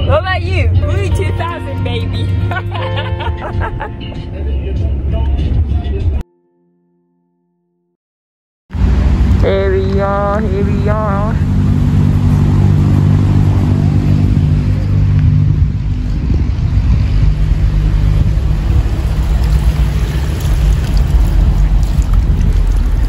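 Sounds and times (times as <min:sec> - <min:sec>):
loud low rumble: 0:08.7 - 0:23.0.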